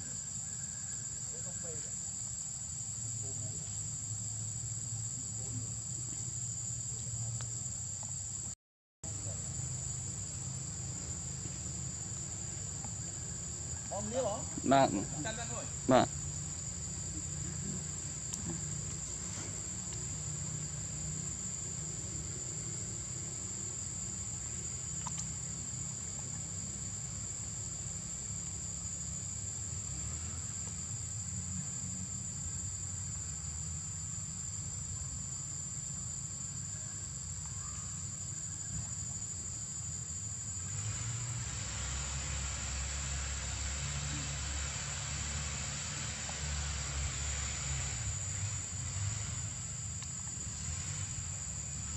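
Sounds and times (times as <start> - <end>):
insects droning: 0.0 - 51.9
broad hiss: 9.1 - 36.5, 37.9 - 51.9.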